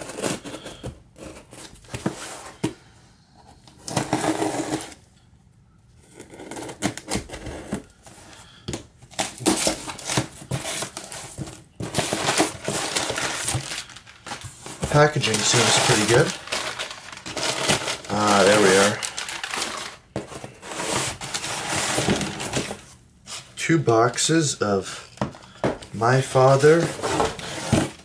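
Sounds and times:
cardboard scraping and rustling: 0:03.4 - 0:05.0, 0:09.1 - 0:23.5, 0:25.3 - 0:28.0.

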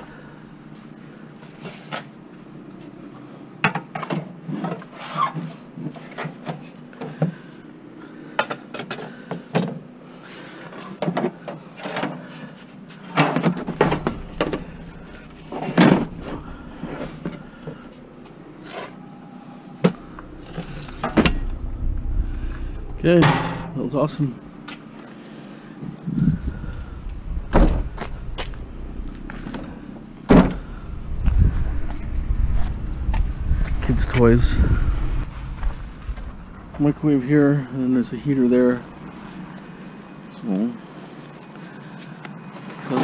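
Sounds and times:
low rumble: 0:13.5 - 0:25.0, 0:26.0 - 0:40.0.

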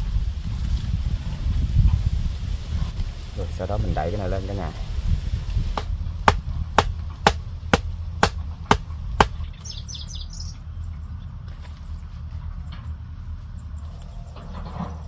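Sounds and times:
wooden stake being pounded: 0:05.8 - 0:09.4.

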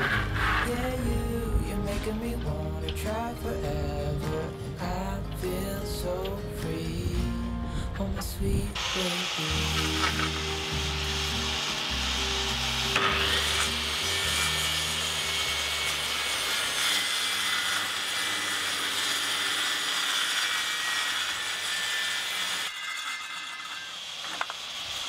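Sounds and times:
circular saw cutting plywood: 0:00.0 - 0:01.3, 0:08.8 - 0:25.0.

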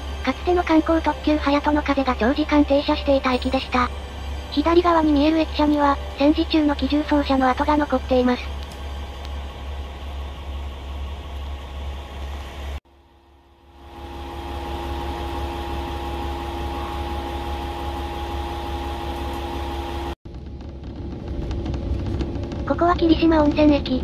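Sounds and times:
steady higher hum: 0:00.0 - 0:22.6.

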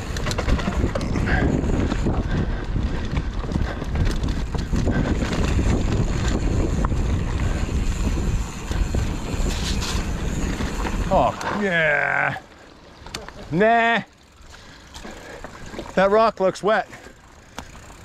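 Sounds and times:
wind buffeting microphone: 0:00.0 - 0:11.6
mountain bike rolling on dirt trail: 0:00.0 - 0:18.0
tyres clicking over roots and rocks: 0:00.0 - 0:18.0.

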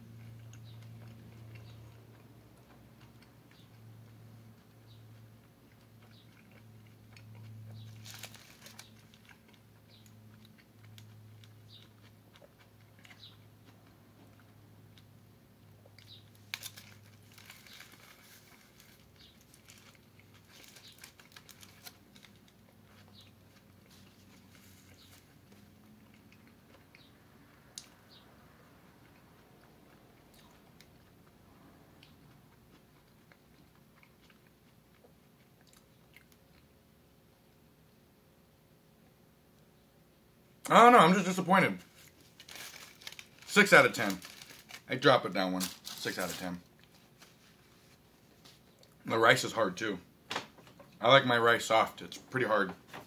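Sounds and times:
person chewing: 0:00.0 - 0:36.8
food wrapper crinkling: 0:07.8 - 0:12.2, 0:15.9 - 0:26.8, 0:41.2 - 0:49.0.

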